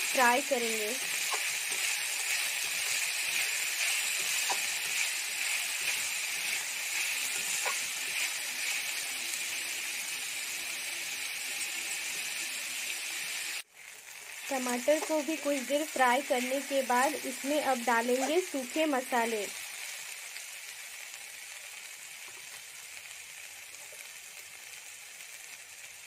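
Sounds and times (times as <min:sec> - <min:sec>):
vegetables sizzling in hot oil: 0:00.0 - 0:26.0
spatula stirring: 0:00.9 - 0:09.0.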